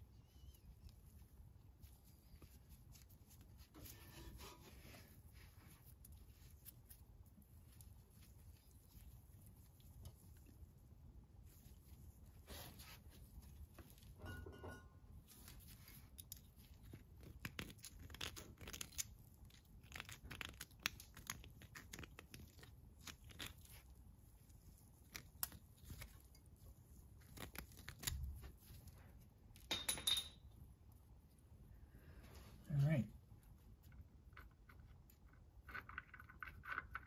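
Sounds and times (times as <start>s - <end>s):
small clicks and scrapes: 15.3s - 29.2s, 33.8s - 37.0s.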